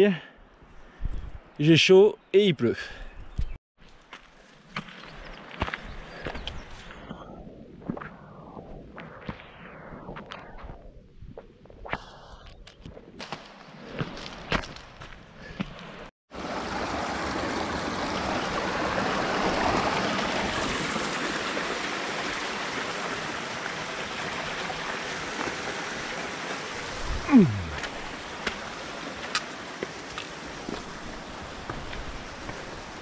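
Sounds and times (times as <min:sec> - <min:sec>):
mountain stream rushing: 0:16.3 - 0:33.0.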